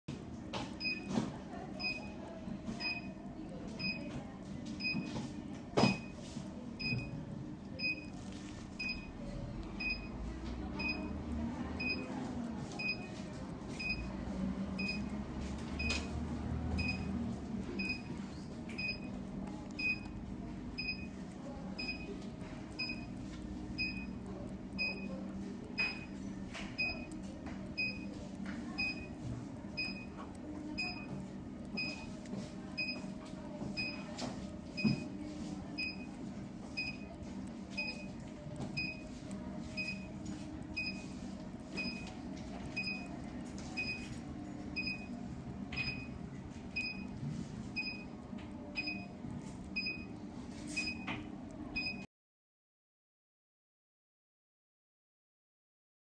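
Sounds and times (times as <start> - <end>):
short high machine beeps: 50.8 - 51.1.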